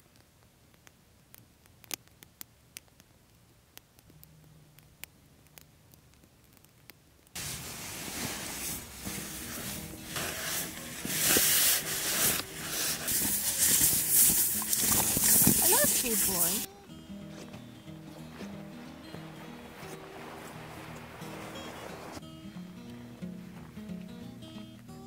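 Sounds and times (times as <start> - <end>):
campfire crackling: 0.0 - 25.0
sleeping bag and tent rustling: 7.4 - 25.0.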